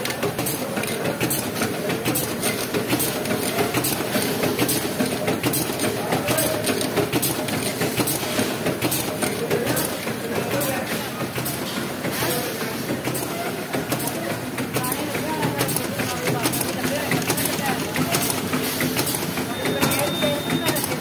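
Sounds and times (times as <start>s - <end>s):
packing machine clattering: 0.0s - 21.0s
sharp machine clicks: 13.0s - 21.0s.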